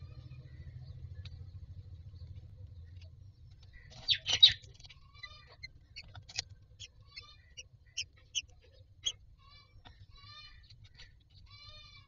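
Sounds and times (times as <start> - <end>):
chicks begging calls: 3.8 - 12.0.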